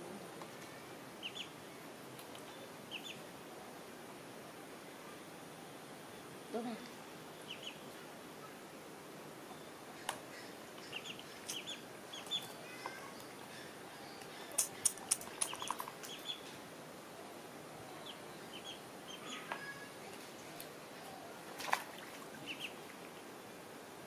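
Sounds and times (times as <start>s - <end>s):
ducklings peeping: 1.2s - 1.5s, 2.9s - 3.2s, 7.5s - 7.9s, 9.9s - 14.8s, 15.4s - 16.5s, 18.0s - 19.8s, 22.4s - 22.8s.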